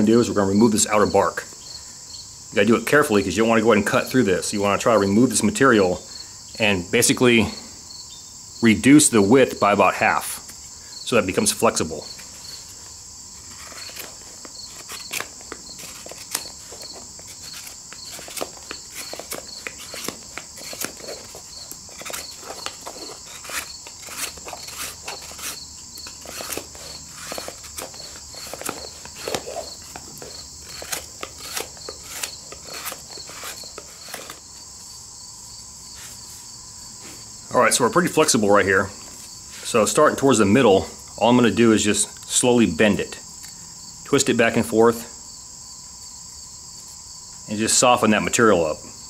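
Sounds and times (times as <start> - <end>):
high-pitched insect chorus: 0.0 - 49.0
knife scraping bark: 12.0 - 34.9.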